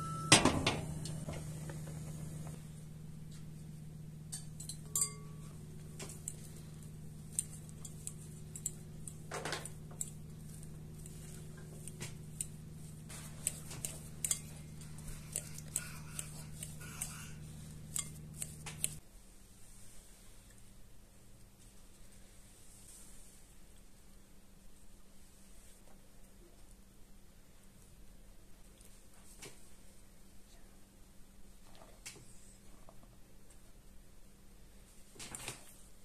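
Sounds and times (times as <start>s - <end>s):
low hum: 0.0s - 19.0s
fork clinking against glass bowl: 4.3s - 6.5s, 7.3s - 9.2s, 13.4s - 19.0s
fork mashing potatoes: 4.3s - 19.0s.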